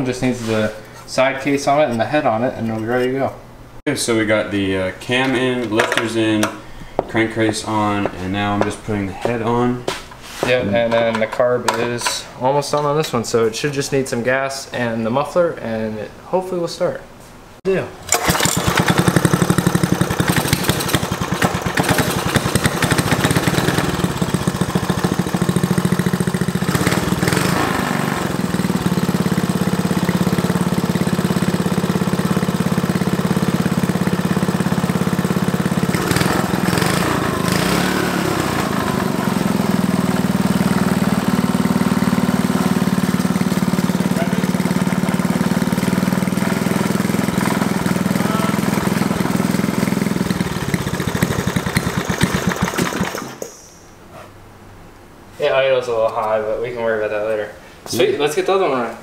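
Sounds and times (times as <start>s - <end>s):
small engine running: 18.1s - 53.5s.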